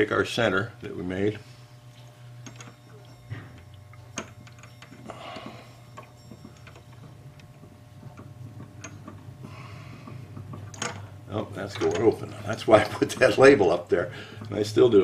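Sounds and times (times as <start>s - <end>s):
steady low hum: 0.0s - 15.0s
small metal clicks: 2.4s - 9.3s.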